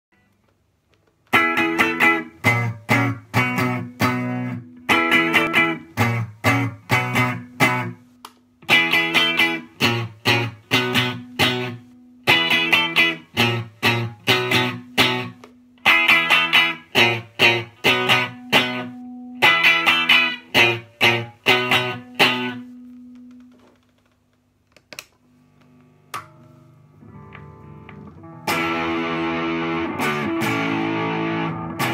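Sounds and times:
electric guitar chord strums: 1.3s - 23.8s, 25.5s - 31.9s
soft guitar plucks: 8.7s - 24.0s, 26.1s - 31.9s.

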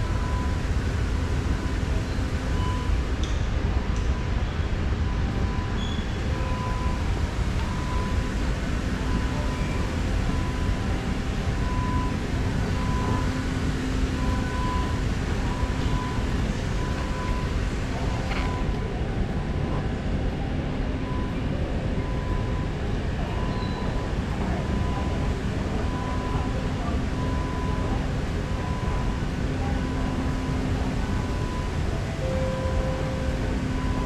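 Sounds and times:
low rumble of station machinery: 0.0s - 34.0s
faint high beep: 4.1s - 8.3s, 23.2s - 24.0s, 27.2s - 34.0s.

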